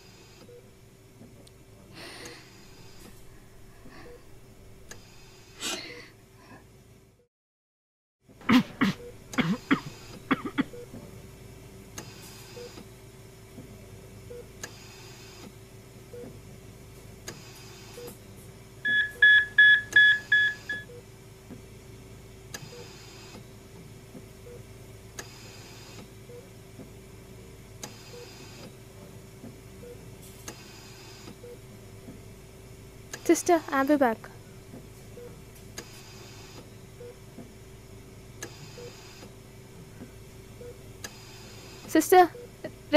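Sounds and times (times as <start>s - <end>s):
faint steady hum: 0.0s - 7.2s, 8.5s - 13.2s
patient monitor beeping fast: 18.8s - 21.0s.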